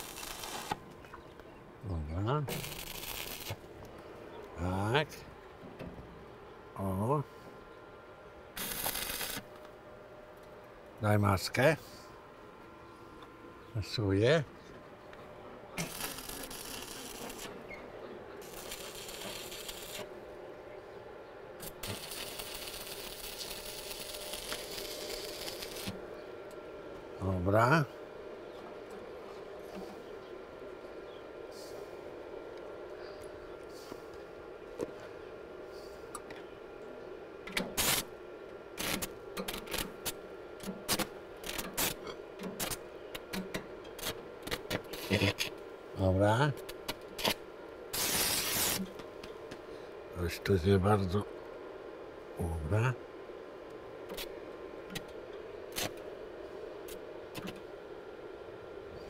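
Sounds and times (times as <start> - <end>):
arc welding crackling hiss: 0.0 - 0.8, 2.0 - 3.7, 8.5 - 9.6, 15.7 - 20.2, 21.6 - 26.0, 37.6 - 38.2, 38.8 - 51.2, 54.0 - 57.7
steady hum: 0.0 - 59.0.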